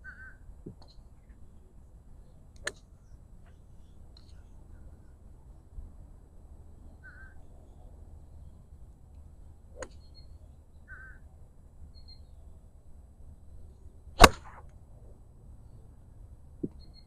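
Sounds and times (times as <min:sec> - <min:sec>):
bird calling: 0:07.0 - 0:07.5, 0:09.8 - 0:11.3
golf club striking ball: 0:14.2 - 0:14.6.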